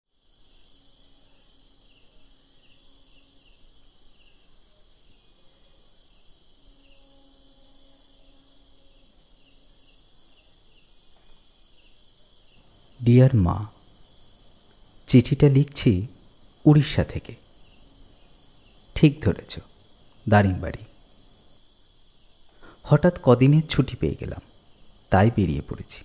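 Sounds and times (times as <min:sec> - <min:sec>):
crickets chirping: 0:00.1 - 0:26.0.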